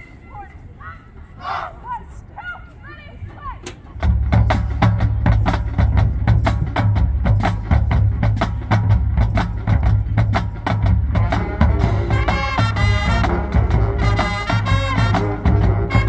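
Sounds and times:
bass drums: 4.0 - 16.0
marching percussion clicking rhythm: 4.0 - 16.0
sustained brass chords: 10.8 - 16.0.

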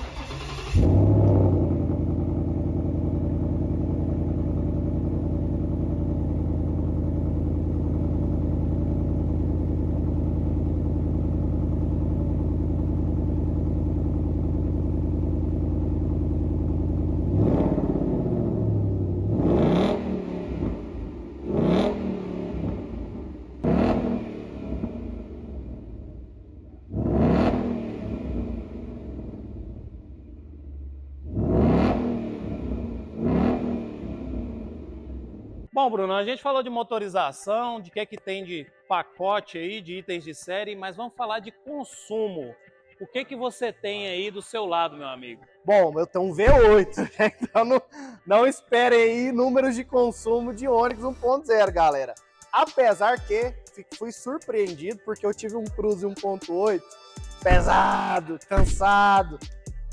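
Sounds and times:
car engine idling and revving: 0.0 - 35.7, 57.5 - 59.0.

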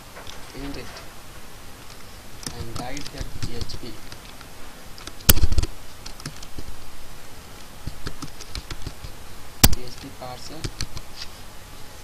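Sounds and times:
computer keyboard typing: 5.0 - 6.5, 7.9 - 9.1, 10.6 - 11.0.

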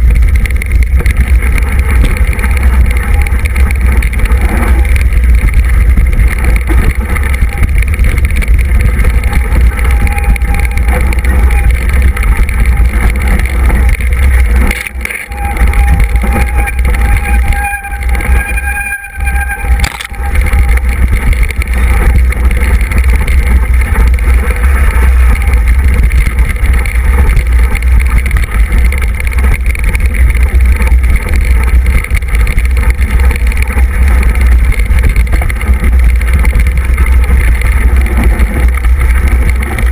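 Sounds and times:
heavy low rumble: 0.0 - 39.9
wind buffeting camera: 0.0 - 39.9.

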